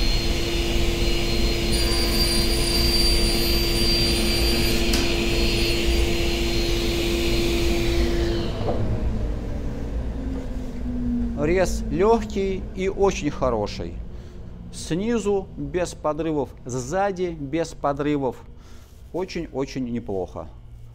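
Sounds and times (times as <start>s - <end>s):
table saw motor hum: 0.0s - 12.4s.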